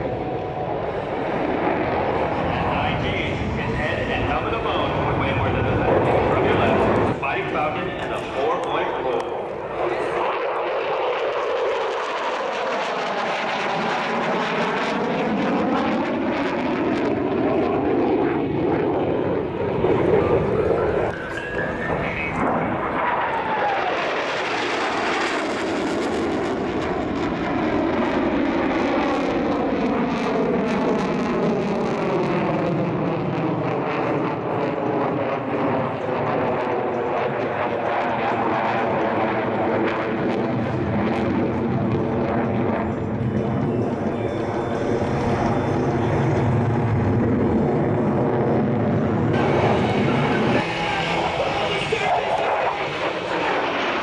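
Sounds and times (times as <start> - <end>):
fighter jet flying past: 0.0 - 54.0.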